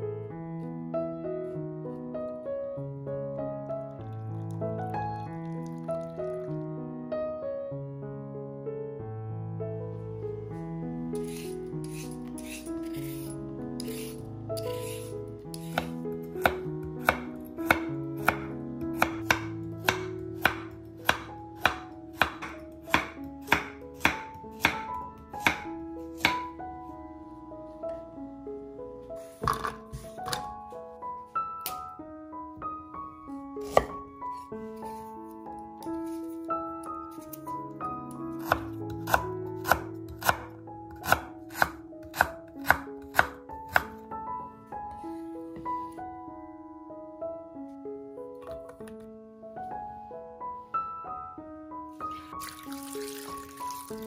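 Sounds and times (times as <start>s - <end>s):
knife slicing carrot on board: 11.2s - 25.6s, 26.2s - 26.5s, 33.6s - 34.0s, 38.4s - 44.0s.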